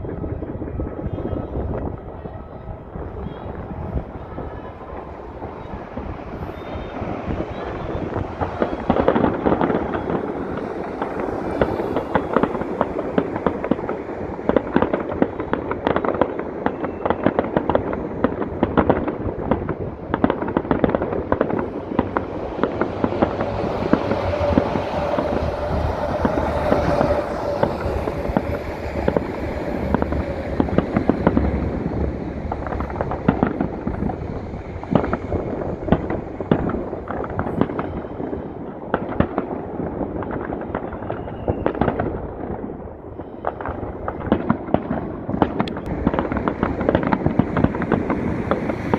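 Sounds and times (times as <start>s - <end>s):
fireworks bangs and crackling: 0.0s - 48.9s
steady held tone: 19.9s - 38.8s.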